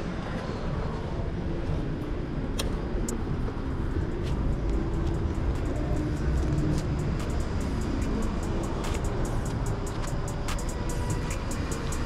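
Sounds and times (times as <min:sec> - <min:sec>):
sharp ticks: 0:04.1 - 0:12.0.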